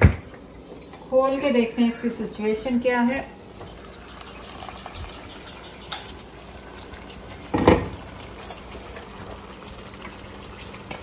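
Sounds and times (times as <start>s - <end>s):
sauce bubbling in a pan: 3.4s - 11.0s.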